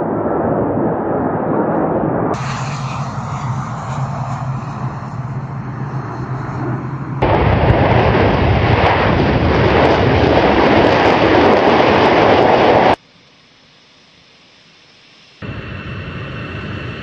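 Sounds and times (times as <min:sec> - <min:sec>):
loud jet engine noise: 0:00.0 - 0:13.0, 0:15.4 - 0:17.0
distant jet drone: 0:00.0 - 0:17.0.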